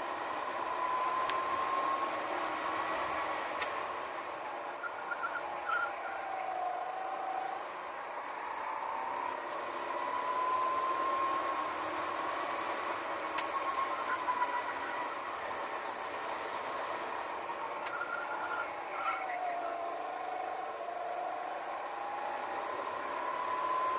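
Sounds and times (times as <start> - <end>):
go-kart engine whine: 0.0 - 23.9
sharp tick: 13.3 - 13.5.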